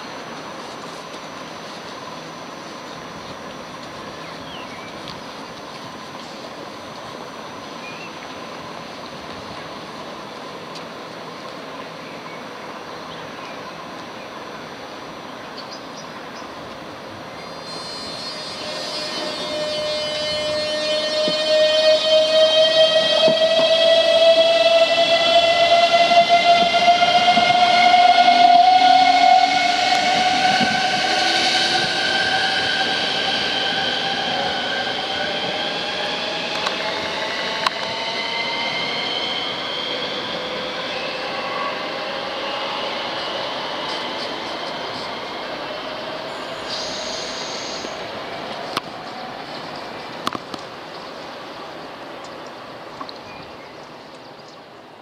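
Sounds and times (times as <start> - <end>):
train equipment hum and hiss: 0.0 - 55.0
high-pitched whine: 17.4 - 50.0.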